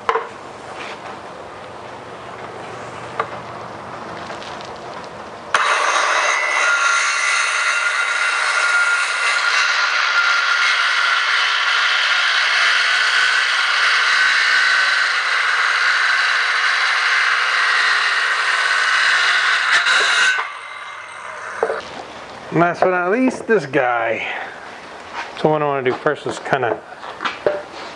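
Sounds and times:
circular saw cutting wood: 0:05.5 - 0:21.9.

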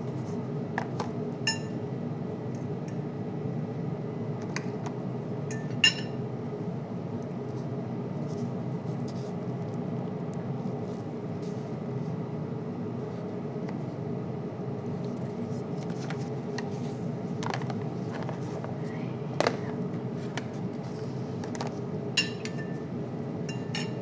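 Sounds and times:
steady low hum: 0:00.0 - 0:24.0
utensils clinking on cookware: 0:05.5 - 0:06.2, 0:22.2 - 0:22.8, 0:23.5 - 0:24.0.

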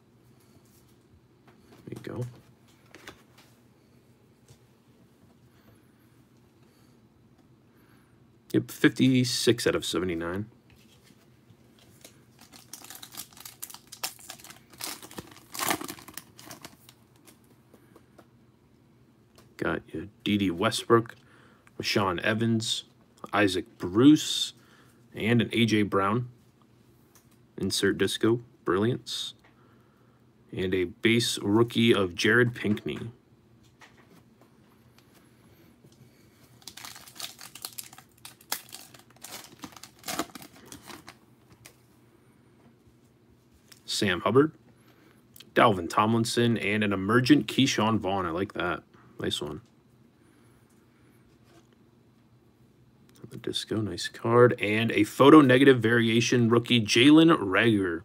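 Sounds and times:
foil wrapper crinkled and torn: 0:12.0 - 0:17.4, 0:36.6 - 0:41.8.

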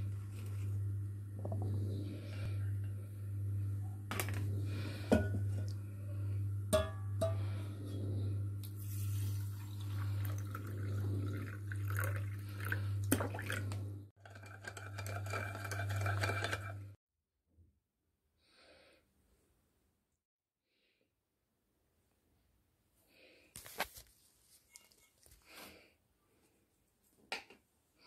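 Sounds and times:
pulsing low hum: 0:00.0 - 0:08.7
water pouring into a bowl: 0:08.6 - 0:13.8.

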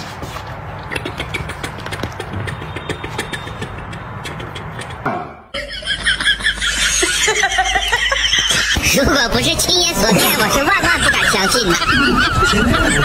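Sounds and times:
high-pitched giggling laughter: 0:05.5 - 0:08.8, 0:09.8 - 0:13.0.

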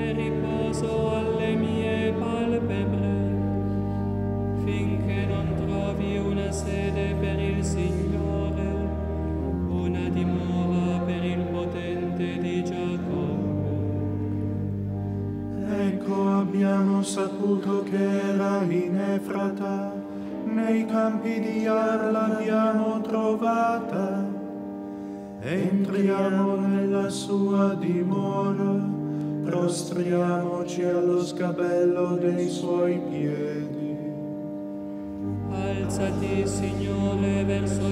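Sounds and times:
long-held drone note: 0:00.0 - 0:19.9, 0:32.2 - 0:37.9
voices chanting slow melody: 0:31.8 - 0:37.9.

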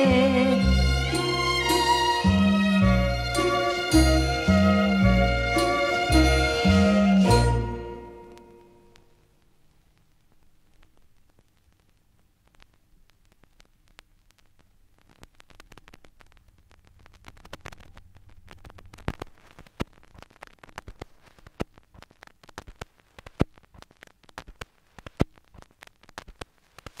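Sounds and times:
vinyl crackle and pops: 0:00.0 - 0:27.0.

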